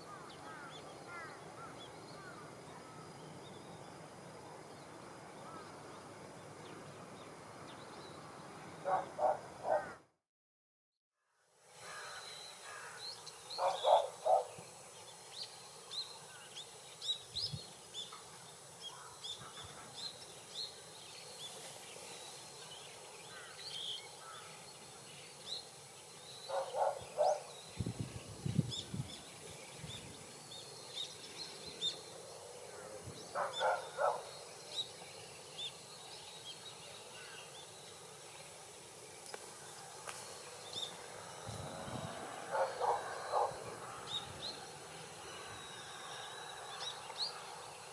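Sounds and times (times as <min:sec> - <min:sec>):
larger bird harsh calls: 0:08.8 - 0:10.0, 0:13.6 - 0:14.5, 0:26.5 - 0:27.5, 0:41.6 - 0:44.3
small birds chirping: 0:11.9 - 0:47.9
low rumble: 0:41.4 - 0:42.6.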